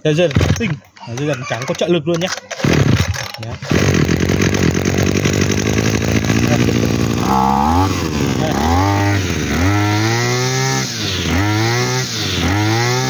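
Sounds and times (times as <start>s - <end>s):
brush cutter engine revving: 2.3s - 13.0s.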